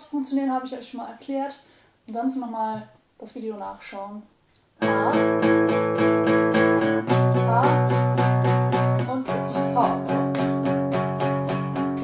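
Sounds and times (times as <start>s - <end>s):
acoustic guitar strumming power chords: 4.8s - 12.0s.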